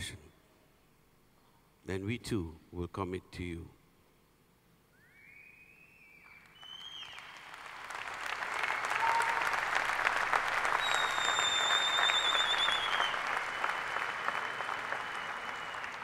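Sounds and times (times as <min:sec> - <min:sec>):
long high-pitched whistle: 0:04.9 - 0:07.3, 0:10.8 - 0:16.0
large audience applauding: 0:06.3 - 0:16.0.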